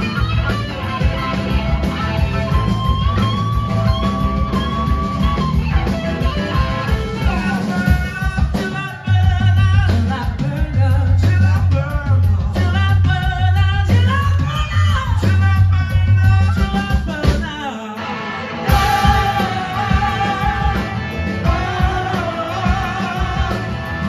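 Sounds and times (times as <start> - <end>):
electric guitar lead: 0.0 - 9.2, 17.8 - 24.0
drums: 0.0 - 24.0.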